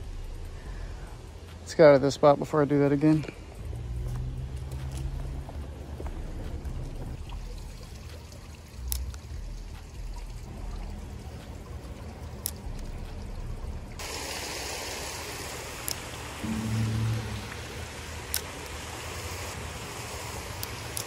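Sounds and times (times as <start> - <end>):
water trickling in a creek: 0.0 - 21.0
loud hiss of running water: 14.0 - 16.4, 17.6 - 21.0.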